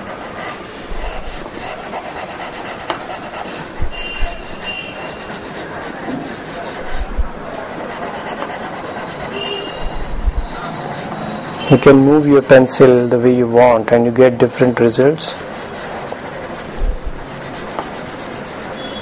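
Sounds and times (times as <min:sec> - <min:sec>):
pencil scratching on paper: 0:00.0 - 0:19.0
soft low thumps: 0:06.9 - 0:07.5, 0:09.8 - 0:10.6.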